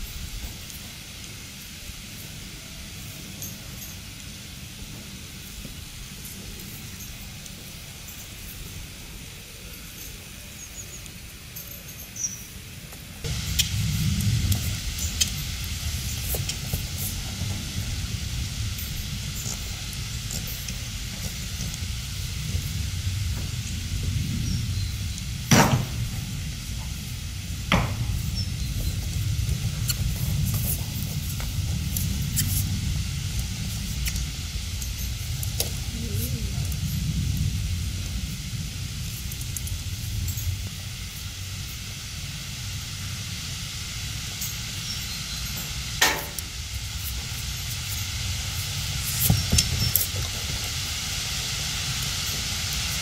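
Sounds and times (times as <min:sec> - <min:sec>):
steady low rumble: 0:00.0 - 0:10.5, 0:12.6 - 0:53.0
wind on microphone: 0:13.2 - 0:42.9.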